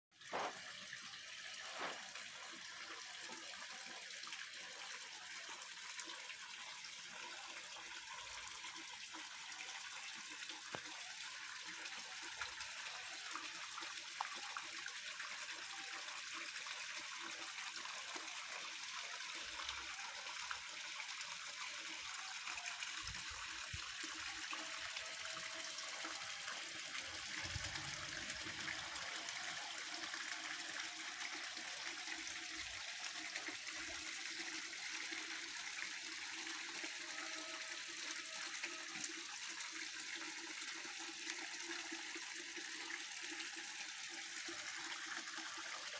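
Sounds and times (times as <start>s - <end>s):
water splashing into pond: 0.2s - 3.4s.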